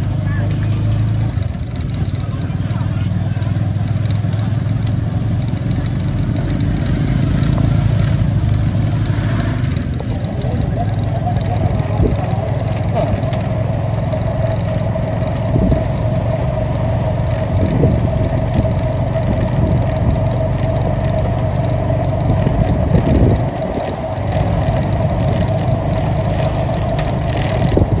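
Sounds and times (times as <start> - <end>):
vehicle engine whine and rumble: 0.0 - 28.0.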